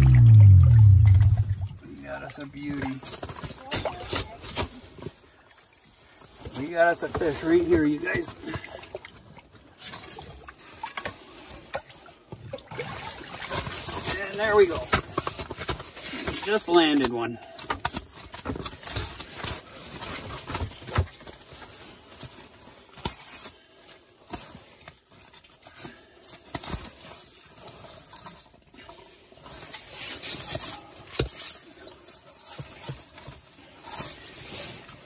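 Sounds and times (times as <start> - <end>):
fish handled on ice: 13.5 - 35.0.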